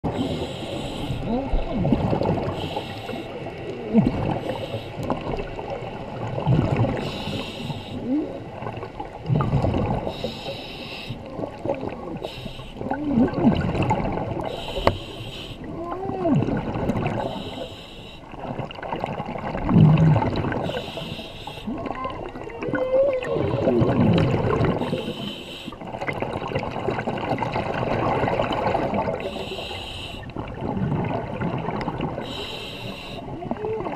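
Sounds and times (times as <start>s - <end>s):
bubbles gurgling underwater: 0.0s - 10.4s, 11.2s - 17.7s, 18.3s - 29.6s, 30.3s - 33.9s
regulator inhalation hiss: 0.2s - 1.2s, 2.6s - 3.4s, 7.0s - 8.0s, 10.1s - 11.2s, 12.2s - 12.8s, 14.5s - 15.7s, 17.2s - 18.2s, 20.7s - 21.7s, 24.9s - 25.8s, 29.2s - 30.2s, 32.3s - 33.2s.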